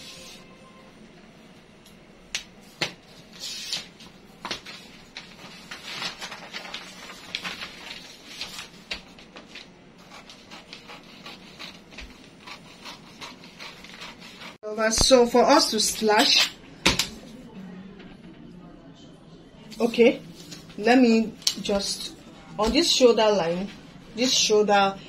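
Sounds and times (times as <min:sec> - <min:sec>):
paper rustling and scraping: 0:02.7 - 0:14.6.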